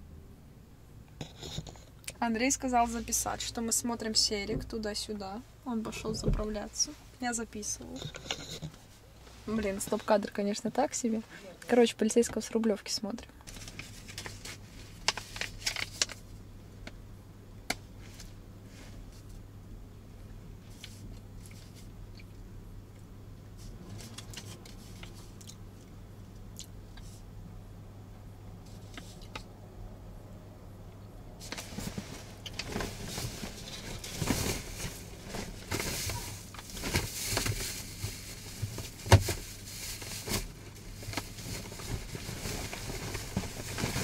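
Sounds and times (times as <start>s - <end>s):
low steady hum: 0.0s - 44.0s
paper bag rustling: 13.5s - 16.2s, 31.4s - 44.0s.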